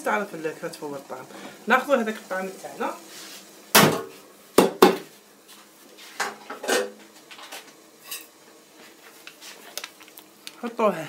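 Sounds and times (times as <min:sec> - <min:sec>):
cookware clattering: 0:06.2 - 0:07.0.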